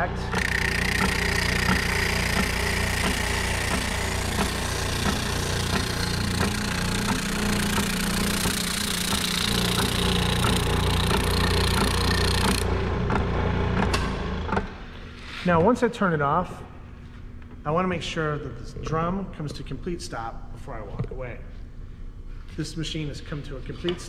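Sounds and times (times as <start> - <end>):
sander motor hum: 0.0 - 14.6.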